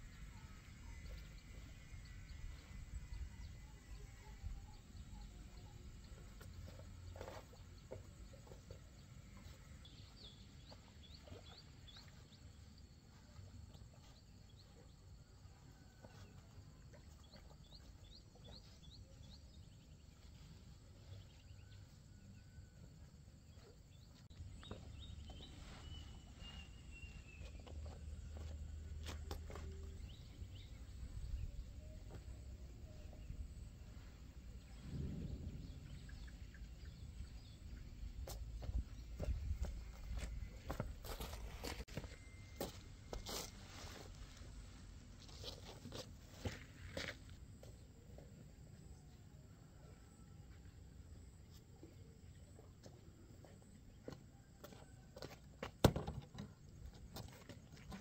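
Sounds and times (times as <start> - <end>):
small birds chirping: 17.2 - 21.7.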